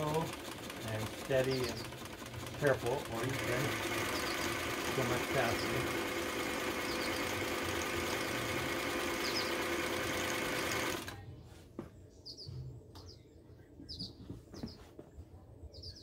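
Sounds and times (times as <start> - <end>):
sewing machine running: 0.0 - 11.2
faint bird chirps: 15.7 - 16.0.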